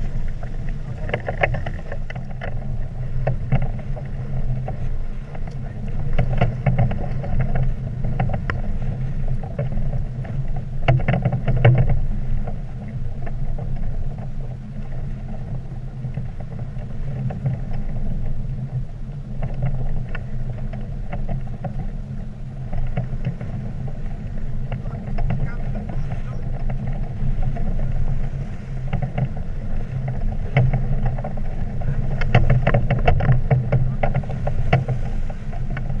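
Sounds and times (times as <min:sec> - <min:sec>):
rigging clicks and rattles: 0:00.0 - 0:36.0
sail fluttering: 0:00.0 - 0:36.0
wind buffeting microphone: 0:00.0 - 0:36.0.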